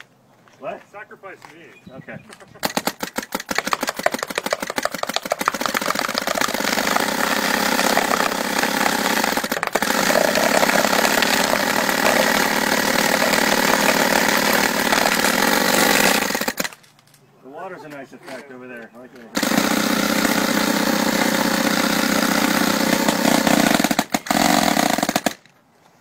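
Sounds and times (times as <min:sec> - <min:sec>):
paintball gun rapid firing: 0:02.6 - 0:16.8, 0:19.4 - 0:25.4.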